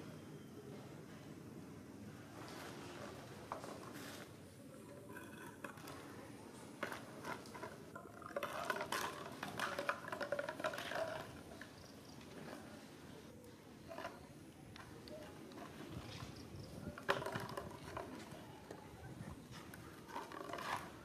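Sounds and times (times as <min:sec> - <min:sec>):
plastic bottle crinkling and scraping: 0:06.7 - 0:12.8, 0:14.8 - 0:18.8, 0:19.4 - 0:21.0.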